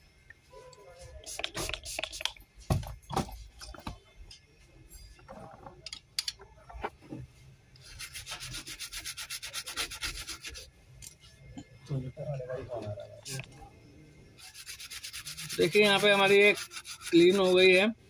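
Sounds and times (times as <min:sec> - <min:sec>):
brush scrubbing rapidly: 0:07.9 - 0:10.7, 0:14.4 - 0:17.8.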